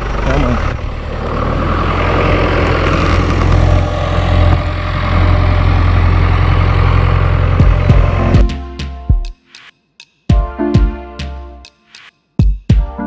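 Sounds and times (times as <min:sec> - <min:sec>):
tractor engine rumbling: 0:00.0 - 0:08.8.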